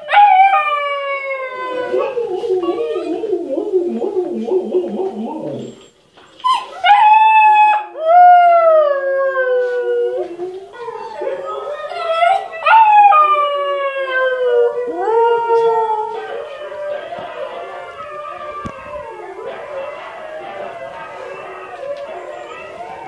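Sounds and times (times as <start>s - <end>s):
husky puppy howling: 0.0s - 5.9s, 6.5s - 23.0s
huskies howling on television: 0.0s - 23.0s.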